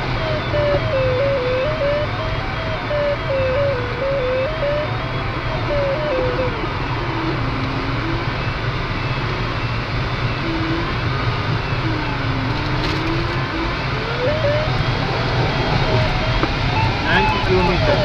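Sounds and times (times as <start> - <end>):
rush of air around cockpit: 0.0 - 18.0
variometer tone sliding in pitch: 0.0 - 18.0.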